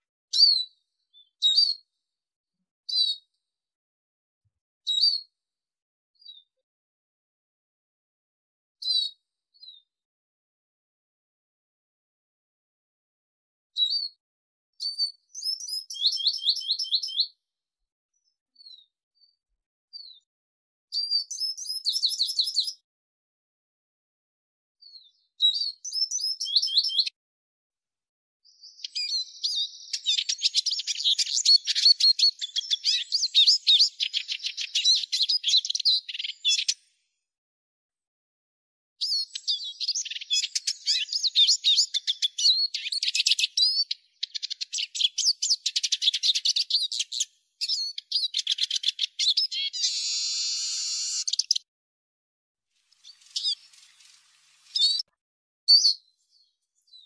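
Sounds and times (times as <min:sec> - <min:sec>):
bird twittering song: 0:00.3 - 0:01.9, 0:02.9 - 0:03.3, 0:04.9 - 0:05.3, 0:06.2 - 0:06.5, 0:08.8 - 0:09.9, 0:13.8 - 0:14.2, 0:14.8 - 0:17.4, 0:18.2 - 0:20.3, 0:20.9 - 0:22.8, 0:24.8 - 0:27.2, 0:28.4 - 0:36.9, 0:39.0 - 0:51.7, 0:52.8 - 0:55.1, 0:55.7 - 0:57.0.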